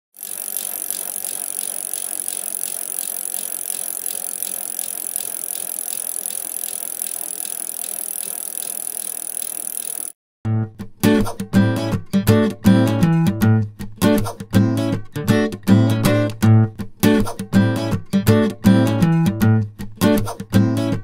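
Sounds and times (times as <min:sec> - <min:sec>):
bicycle rolling: 0:00.1 - 0:10.2.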